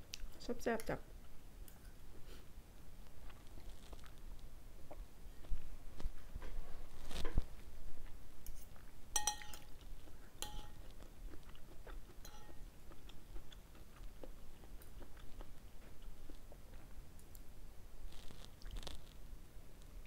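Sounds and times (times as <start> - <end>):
chewing and mouth sounds: 7.6 - 17.4
spoon clinking against ceramic bowl: 9.2 - 9.7, 10.4 - 10.9, 12.2 - 12.6.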